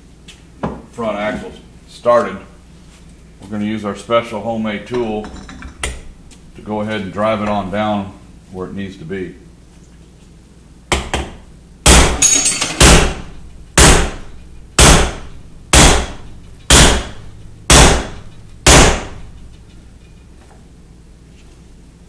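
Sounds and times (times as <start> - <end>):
hammer striking metal pipe: 11.9 - 19.3.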